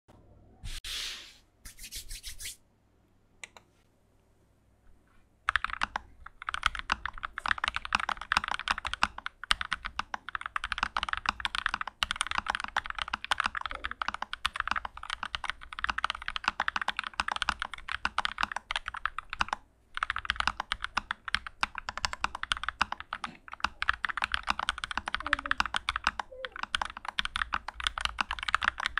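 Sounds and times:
short hissing noises: 0.6 - 2.6
mechanical keyboard typing: 5.5 - 28.9.

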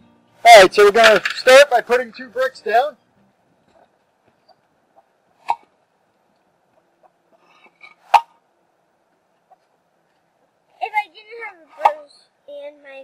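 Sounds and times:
concrete blocks knocking: 0.8 - 1.6.

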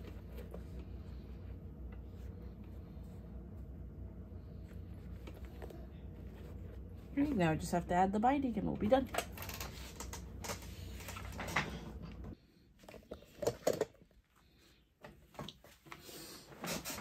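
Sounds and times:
low hum: 0.0 - 12.4.

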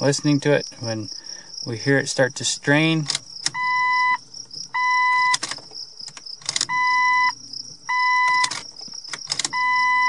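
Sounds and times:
dashboard warning chime beeping: 3.5 - 4.2, 4.8 - 5.4, 6.7 - 8.6, 9.4 - 10.0
ignition key clicks: 8.2 - 9.9.

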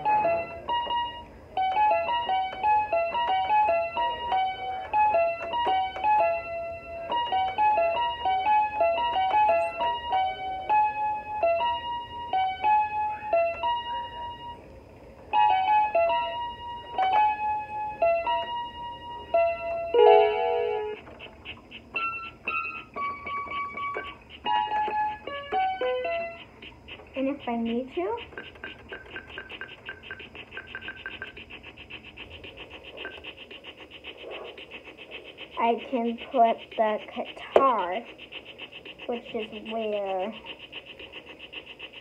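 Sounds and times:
keyboard piano melody: 0.0 - 14.7, 15.3 - 33.4.

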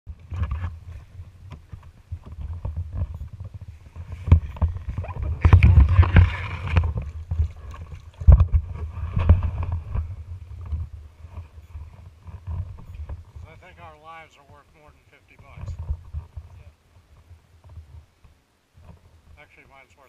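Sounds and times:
paddle splashing water: 0.9 - 13.9
low rumble: 2.8 - 13.8.

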